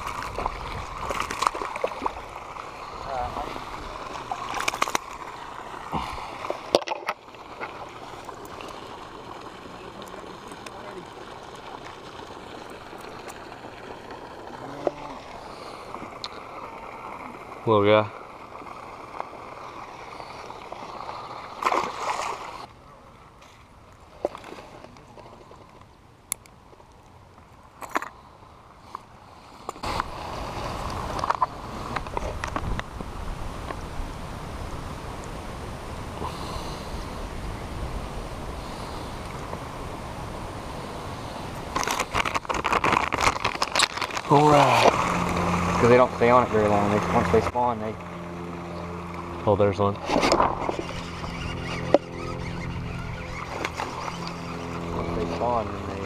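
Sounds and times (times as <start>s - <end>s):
fish splashing into water: 0.0s - 2.9s, 3.8s - 17.6s, 18.3s - 22.7s
steady outdoor hiss: 0.0s - 56.0s.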